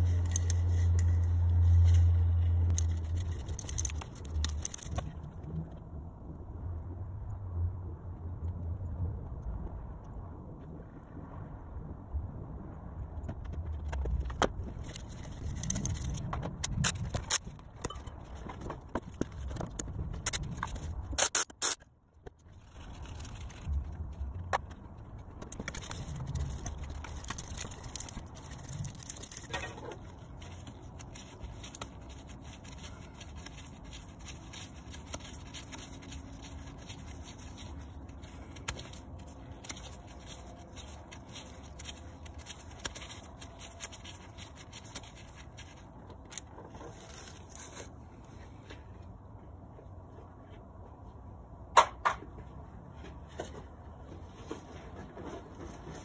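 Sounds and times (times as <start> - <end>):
gloved hand scraping and rubbing: 0.0 - 5.2, 25.5 - 48.9.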